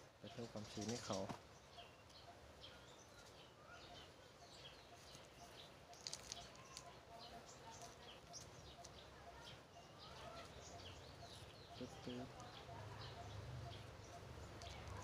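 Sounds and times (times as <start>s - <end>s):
small birds chirping: 0.0s - 15.0s
soft clicks of plastic pot: 6.0s - 7.0s.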